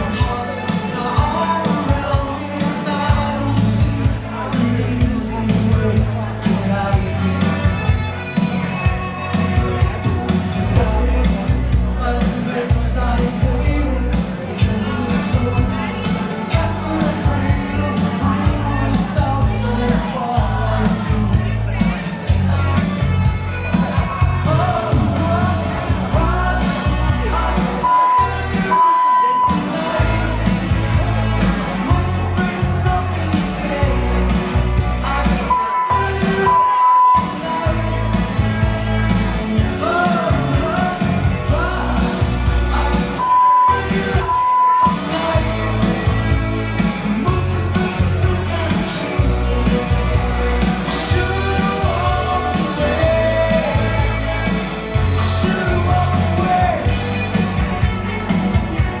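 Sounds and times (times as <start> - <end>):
pop-rock song with vocals: 0.0 - 59.0
high censor bleep: 27.9 - 29.6, 35.5 - 37.3, 43.2 - 45.0.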